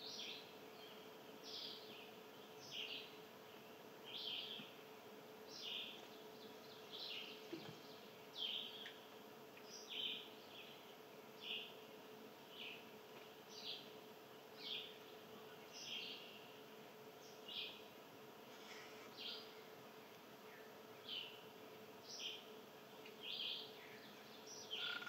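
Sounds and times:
faint steady hum: 0:00.0 - 0:25.0
songbird chirping: 0:05.5 - 0:12.9, 0:13.5 - 0:16.6, 0:22.0 - 0:25.0.

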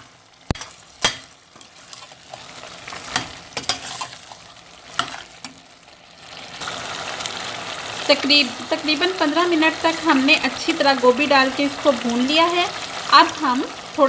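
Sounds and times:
food sizzling in oil: 0:00.0 - 0:14.0.

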